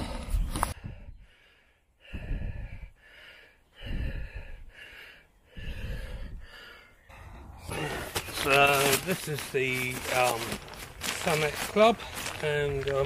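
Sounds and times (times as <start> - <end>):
man breathing heavily: 0.6 - 8.4.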